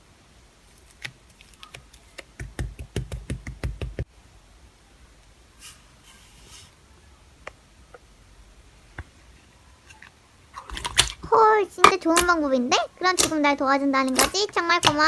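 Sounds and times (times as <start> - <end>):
slime squishing: 13.0 - 15.0.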